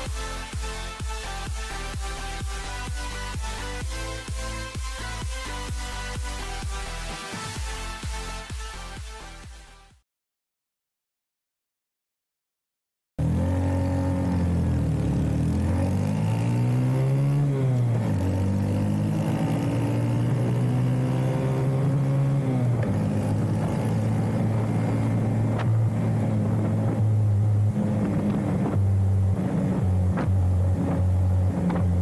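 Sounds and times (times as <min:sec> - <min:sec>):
motorcycle engine revving: 0:13.2 - 0:32.0.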